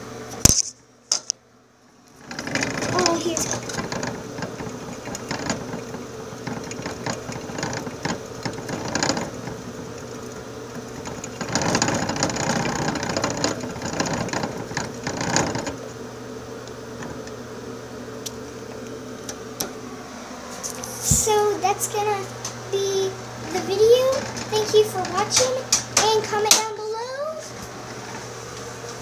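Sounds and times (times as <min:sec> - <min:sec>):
plastic exercise wheel rattling: 0:02.2 - 0:15.9, 0:23.5 - 0:26.7.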